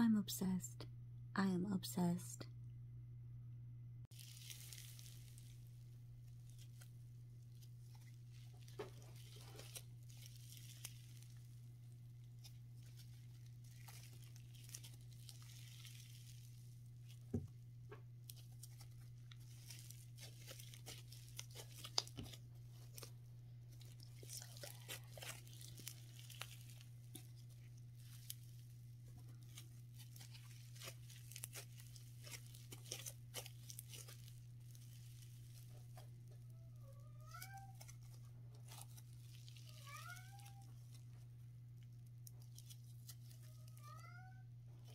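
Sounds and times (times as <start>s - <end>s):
slime stretched and squished by hand: 4.1s - 44.9s.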